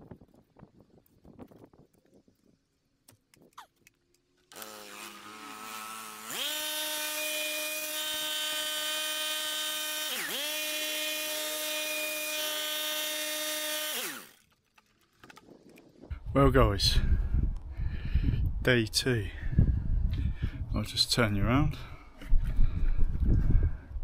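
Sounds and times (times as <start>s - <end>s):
electric chainsaw motor whining: 4.4s - 14.6s.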